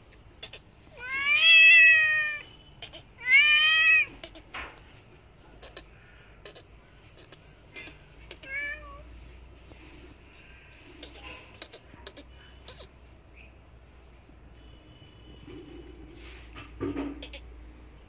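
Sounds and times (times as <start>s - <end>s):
cat meowing: 0.9s - 4.5s, 7.8s - 9.1s.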